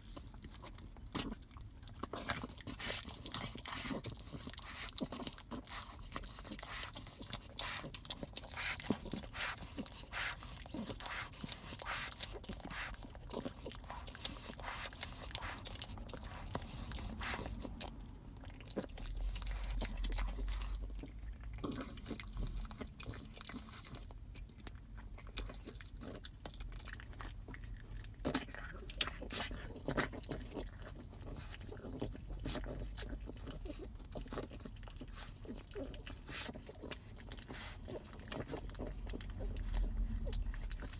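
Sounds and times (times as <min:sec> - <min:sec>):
dog gnawing on chew stick: 0:00.0 - 0:40.9.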